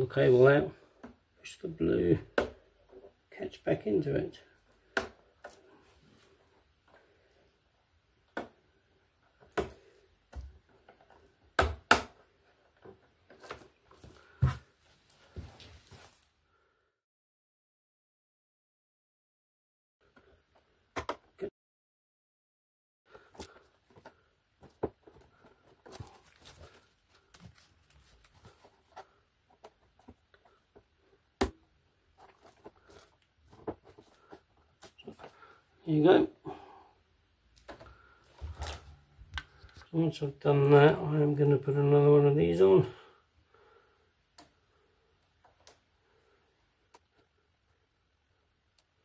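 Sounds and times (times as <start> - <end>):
handling rustle: 23.2 - 30.6, 37.6 - 39.9.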